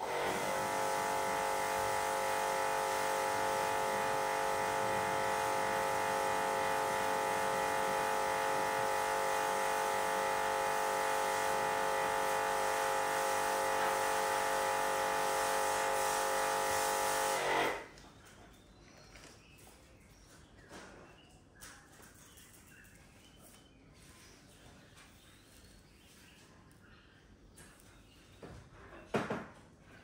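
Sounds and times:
induction cooktop humming: 0.0 - 18.0.

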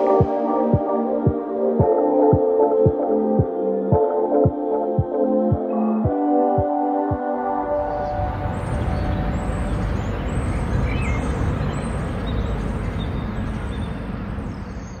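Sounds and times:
high bird chirps: 7.8 - 15.0
low traffic rumble: 7.8 - 15.0.

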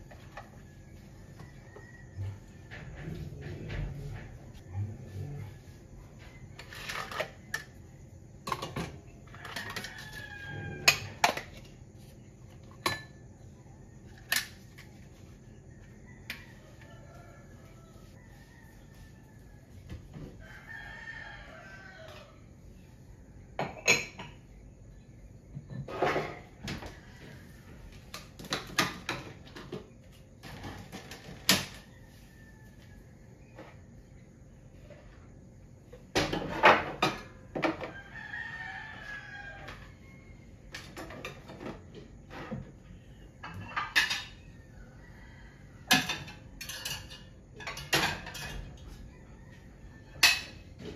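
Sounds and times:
rooster crowing: 0.2 - 6.6, 9.2 - 11.3, 15.5 - 22.6, 26.6 - 28.0, 31.4 - 33.7, 37.2 - 41.2, 44.1 - 50.9
dishes and utensils clinking: 12.6 - 13.3, 23.6 - 24.5, 43.4 - 44.5, 45.9 - 48.8, 50.1 - 50.9.

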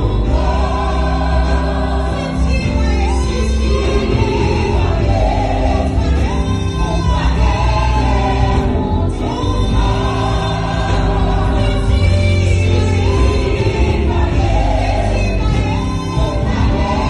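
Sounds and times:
gospel group singing in harmony: 0.0 - 17.0.

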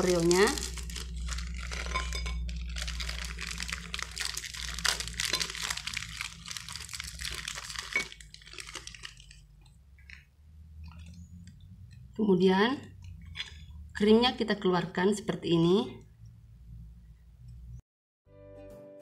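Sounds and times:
plastic wrapper crinkling: 0.0 - 11.6.

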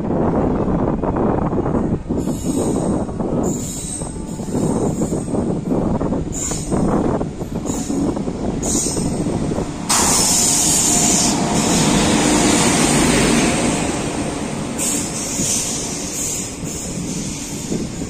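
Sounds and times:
train coaches rumbling on rails: 0.0 - 18.0
locomotive rushing past: 4.8 - 18.0.

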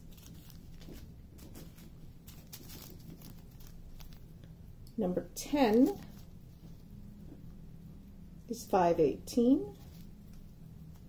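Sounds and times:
plastic bag crinkling: 0.0 - 4.3, 5.7 - 6.3.

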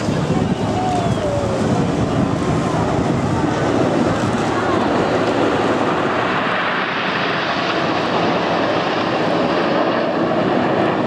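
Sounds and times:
aircraft engine noise: 0.0 - 11.0.

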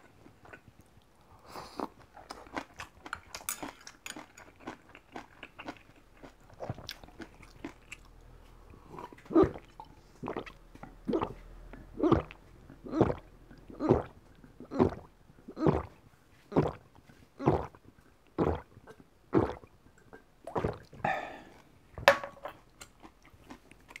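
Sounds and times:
person gulping water: 6.5 - 7.8, 8.8 - 23.2.

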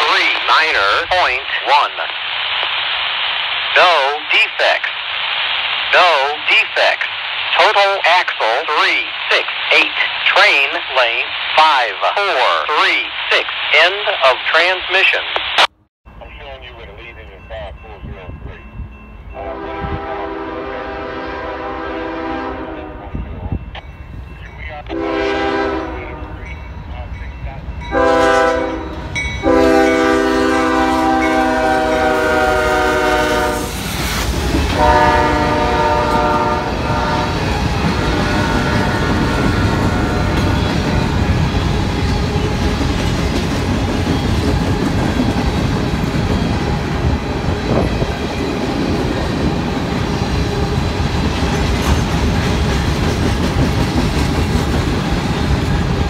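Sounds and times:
locomotive horn blasts: 19.4 - 23.2, 24.9 - 26.5, 27.9 - 33.7, 34.7 - 37.4, 38.0 - 40.6
train wheels clacking over rails: 37.4 - 56.0.

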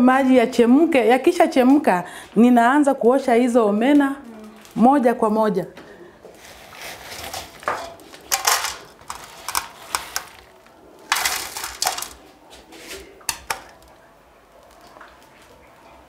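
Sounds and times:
dried fish rattling in metal basin: 6.9 - 12.3
metal basin clinks: 7.4 - 10.4.

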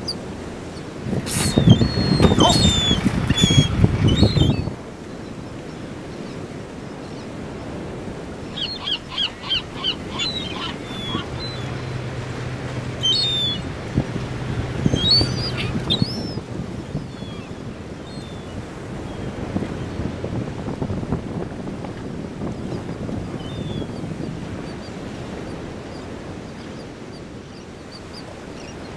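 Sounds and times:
gulls calling: 0.0 - 19.9
water: 0.0 - 28.9
wind: 0.0 - 28.9.

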